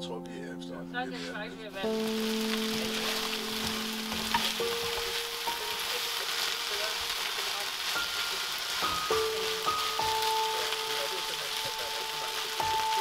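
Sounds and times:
vegetables sizzling in frying pan: 1.7 - 13.0
spatula tapping pan: 2.4 - 10.2.

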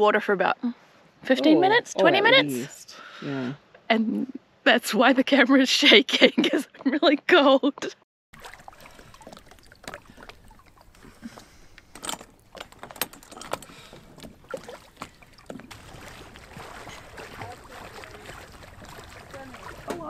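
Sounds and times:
light knocks and clinks: 11.3 - 15.7.

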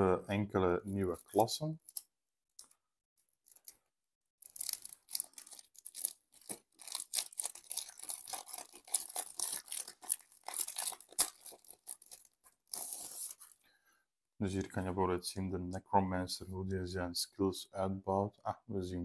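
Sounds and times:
packaging crinkling and tearing: 4.4 - 13.6.

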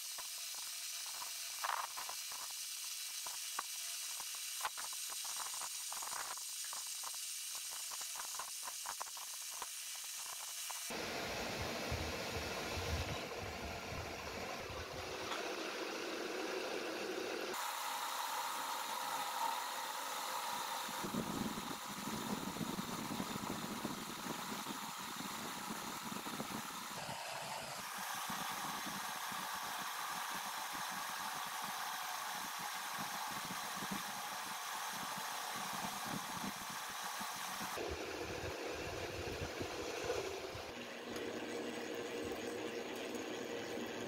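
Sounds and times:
metal lathe cutting steel: 10.9 - 44.0.

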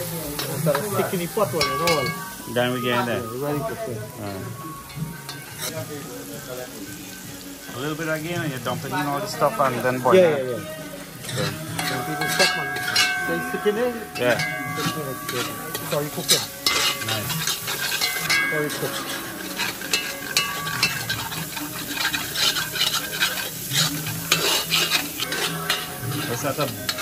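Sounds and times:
curry paste sizzling: 0.0 - 27.0
metal spoon scraping a pot: 11.2 - 27.0.

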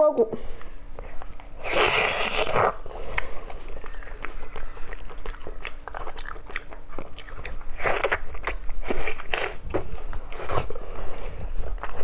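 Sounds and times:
wet chewing and lip smacks: 2.3 - 10.8.

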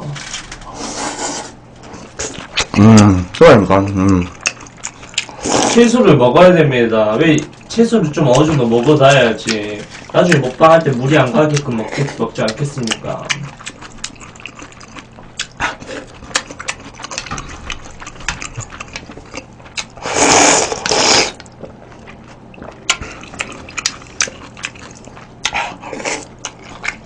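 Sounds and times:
wet chewing and lip smacks: 2.1 - 5.4, 7.4 - 20.0, 20.8 - 27.0
slurping noodles and broth: 5.2 - 5.9, 20.0 - 21.4.

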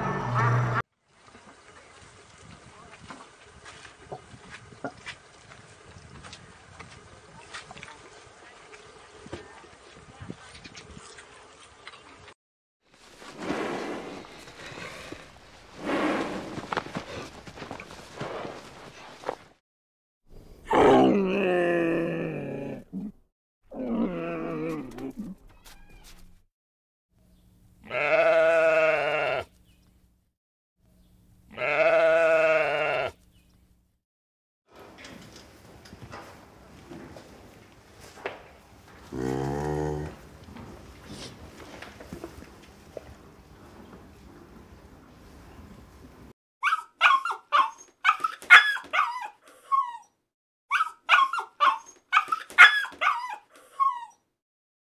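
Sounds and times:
sheep bleating: 27.8 - 29.5, 31.5 - 33.2
dog yipping and barking: 46.6 - 50.1, 50.7 - 54.2.

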